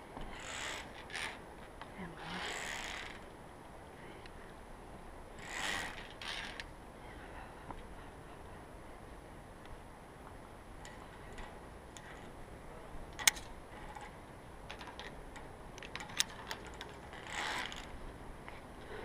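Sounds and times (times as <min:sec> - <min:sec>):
carabiners clicking on steel cables: 0:00.3 - 0:01.4, 0:02.2 - 0:03.2, 0:05.4 - 0:06.7, 0:13.2 - 0:18.0.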